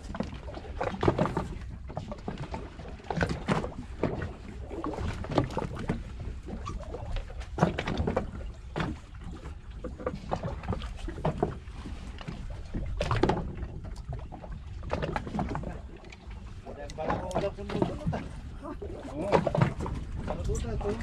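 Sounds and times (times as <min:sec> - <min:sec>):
water lapping against boat hull: 0:00.0 - 0:21.0.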